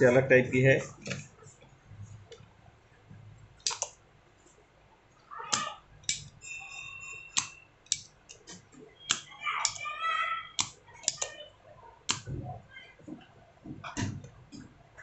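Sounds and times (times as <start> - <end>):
desoldering pump clicks: 3.6 - 4.0, 5.5 - 6.3, 10.6 - 11.3.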